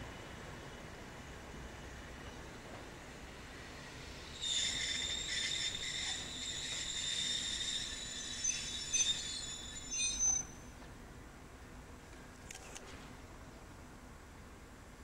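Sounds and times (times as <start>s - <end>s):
train wheels squealing: 3.8s - 10.8s.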